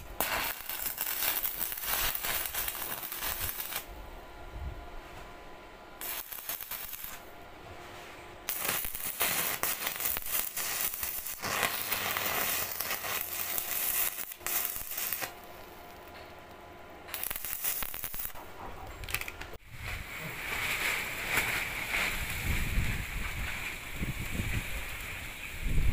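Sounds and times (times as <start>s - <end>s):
welding arc crackling: 0.0s - 3.9s, 6.0s - 7.4s, 8.4s - 19.5s
rough wind-like outdoor noise: 17.0s - 25.9s.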